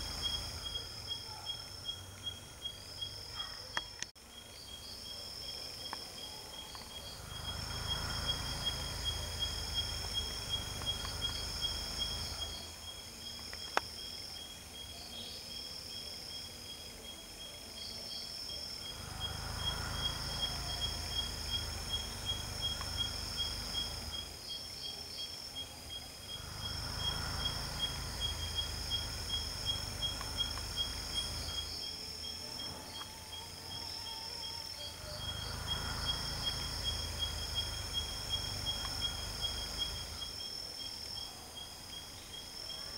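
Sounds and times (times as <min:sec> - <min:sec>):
short insect chirps: 0:00.0 - 0:14.2, 0:18.2 - 0:41.3
crickets trilling: 0:00.0 - 0:42.9.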